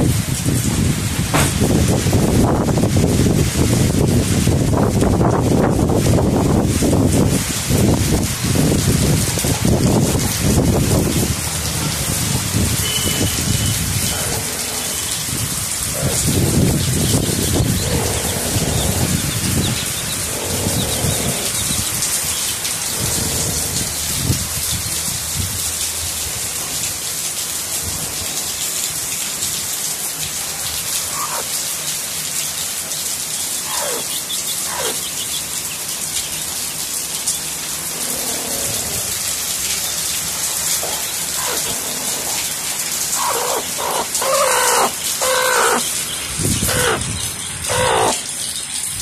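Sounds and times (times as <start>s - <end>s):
rain falling: 0.0s - 49.0s
animal calls: 14.0s - 24.0s, 30.9s - 31.6s, 32.6s - 36.6s, 37.8s - 39.2s, 40.6s - 48.7s.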